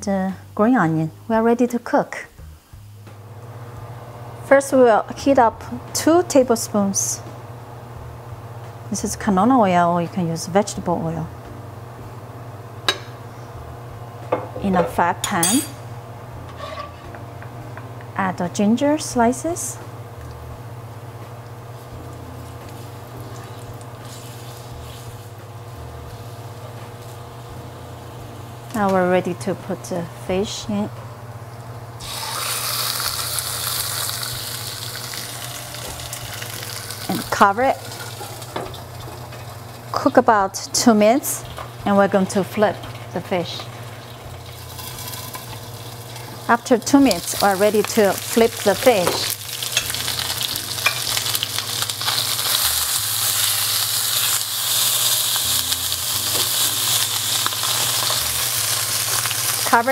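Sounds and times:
fish sizzling in hot oil: 21.7 - 27.9, 32.0 - 40.2, 41.2 - 59.9.

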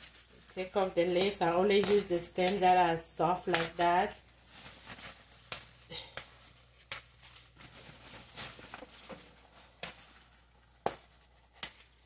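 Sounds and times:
leaves snapping and tearing: 0.0 - 2.7
leaves rustling: 3.5 - 10.4.

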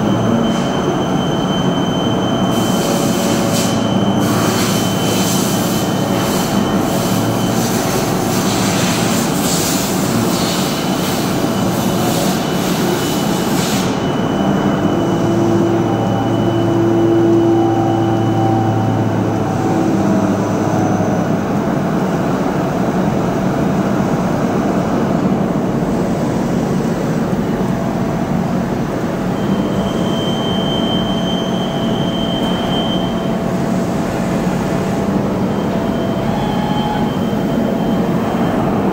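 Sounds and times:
machine whining tones: 34.9 - 38.9.

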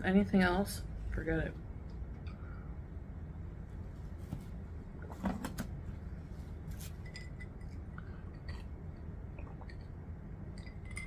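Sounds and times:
tableware clinking: 7.0 - 7.8.

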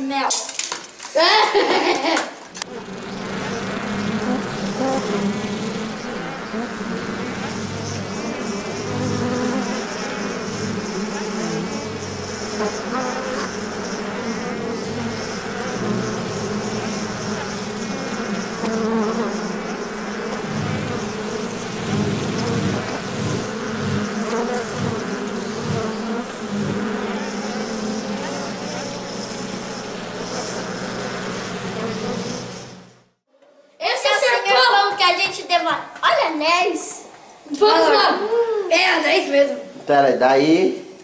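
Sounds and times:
bumblebee buzzing: 1.6 - 33.3.

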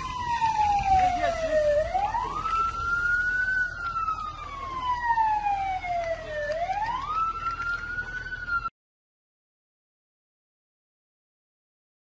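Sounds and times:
fire engine siren wailing: 0.0 - 8.7.

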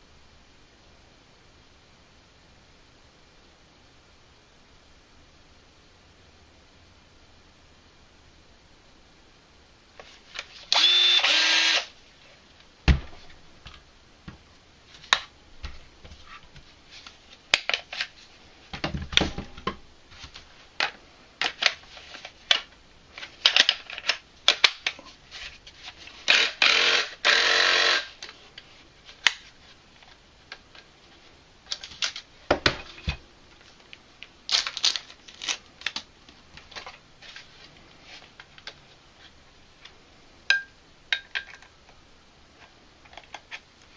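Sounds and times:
plastic packaging rustling: 28.3 - 39.3.

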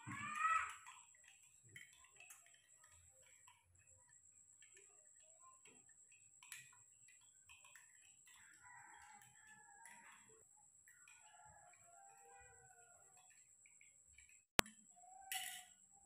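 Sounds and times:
faint clicks and ticks: 0.0 - 15.3.

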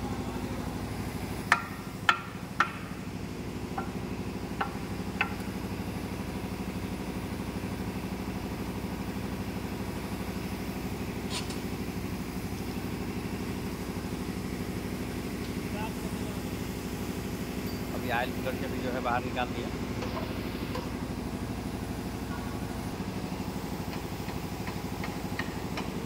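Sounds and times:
ringing metal clink: 17.6 - 17.9.

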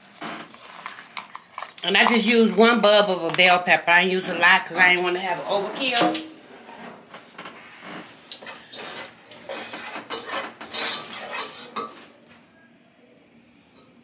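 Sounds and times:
spoon scraping and clinking a pot: 8.3 - 12.1.

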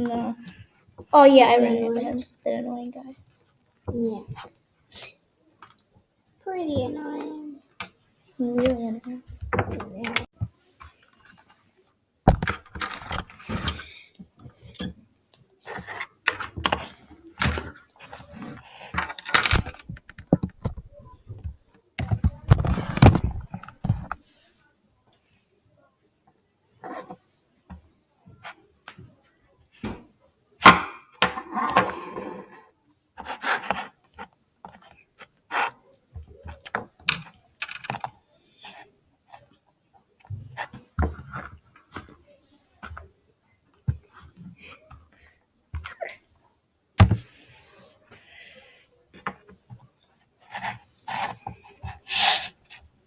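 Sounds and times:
plastic tubs scraping and handled: 15.6 - 24.3, 31.2 - 39.5.

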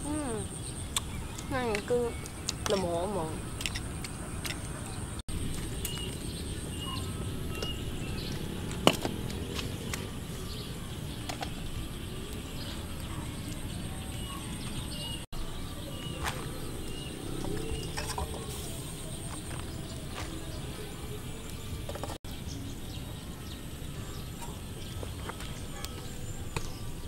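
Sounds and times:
steady low rumble: 1.8 - 27.0
high bird chirps: 5.7 - 8.6, 9.3 - 20.8.

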